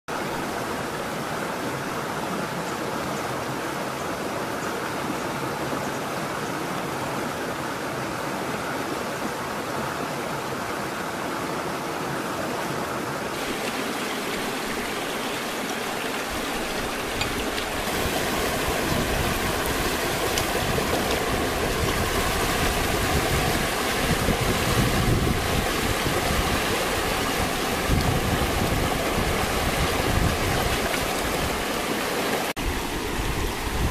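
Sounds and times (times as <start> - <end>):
stream water rushing: 0.1 - 33.9
water splashing: 13.3 - 32.6.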